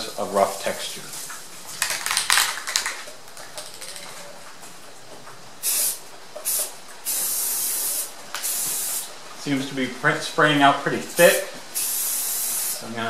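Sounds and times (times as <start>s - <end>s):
aerosol can spraying: 5.6s - 9.1s, 11.2s - 12.8s.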